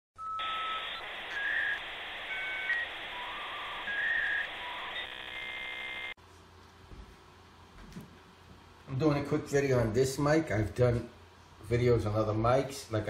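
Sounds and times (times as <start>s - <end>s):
buzzy held tone: 0.4s - 6.2s.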